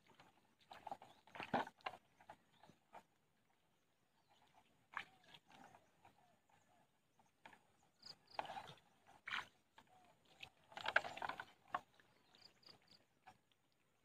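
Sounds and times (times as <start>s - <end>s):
footsteps splashing through muddy water: 4.2s - 6.8s, 7.4s - 14.0s.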